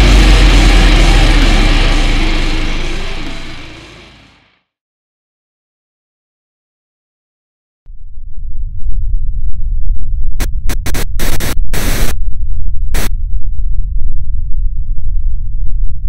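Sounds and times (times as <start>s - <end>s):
distorted low rumble: 0.0s - 4.5s, 7.9s - 16.0s
static blasts: 0.0s - 4.5s, 10.4s - 12.1s
glitchy clicks: 10.4s - 12.2s.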